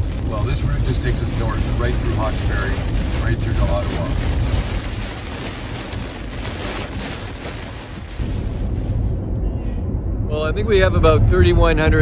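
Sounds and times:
heavy rain on car: 0.0s - 9.3s.

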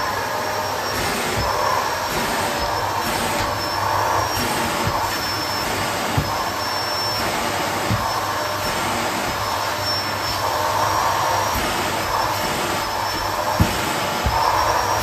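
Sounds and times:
vacuum cleaner running: 0.0s - 15.0s.

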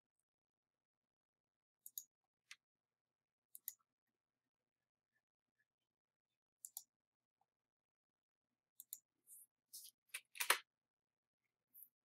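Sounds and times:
keyboard and mouse clicks: 9.8s - 10.6s.

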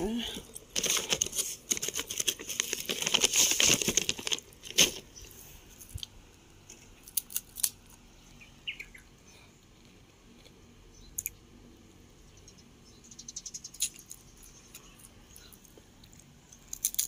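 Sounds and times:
chip bag crinkling: 0.3s - 5.2s.

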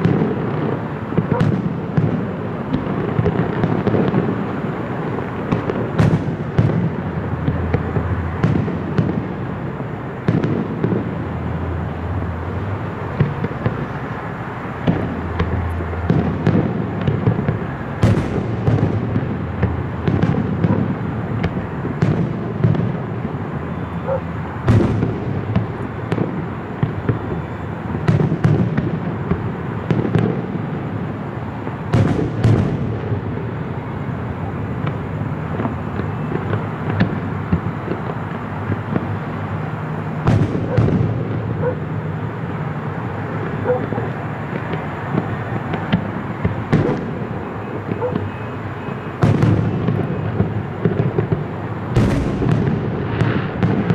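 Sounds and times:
fireworks booms: 0.0s - 53.9s
fireworks crackle: 0.0s - 53.9s.

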